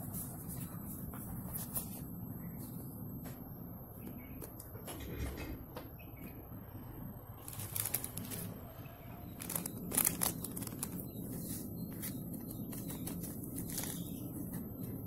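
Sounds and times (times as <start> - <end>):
sharp crackles: 7.4 - 8.5, 9.4 - 11.1
plastic packet crinkling: 7.4 - 8.6, 9.3 - 14.6.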